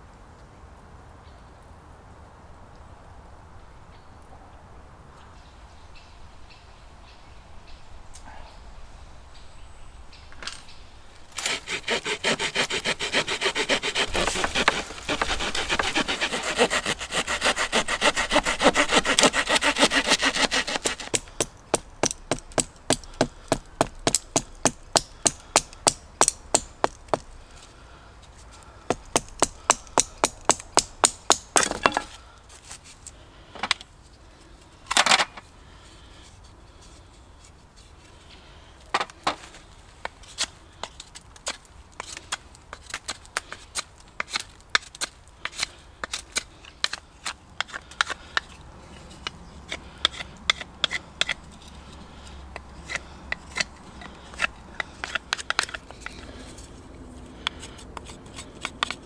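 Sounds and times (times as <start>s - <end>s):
hand saw cutting wood: 11.3s - 27.3s, 49.7s - 56.5s.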